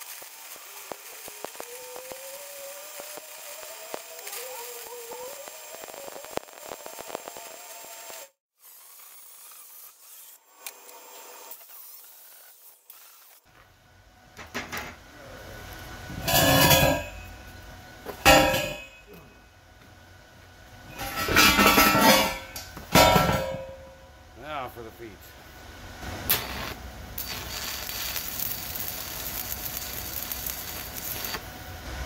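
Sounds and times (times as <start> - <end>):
steel pipes clanging and scraping: 16.2 - 17.3, 18.2 - 19.2, 20.9 - 24.0.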